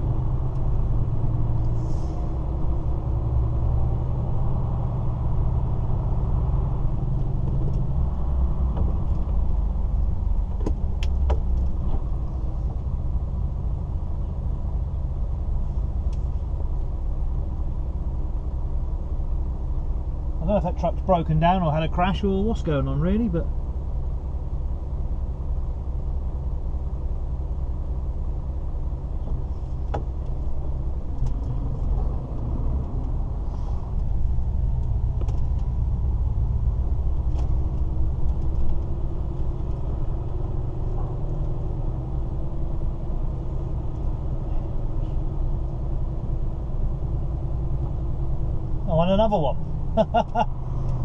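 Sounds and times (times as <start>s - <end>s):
lorry diesel engine rumble: 0.0s - 51.0s.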